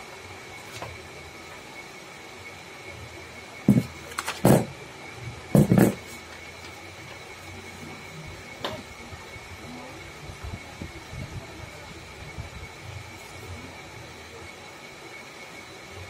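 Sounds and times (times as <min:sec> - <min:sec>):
faint high whine: 0:00.0 - 0:16.0
paper thumps and rustles: 0:03.7 - 0:04.7, 0:05.6 - 0:06.8.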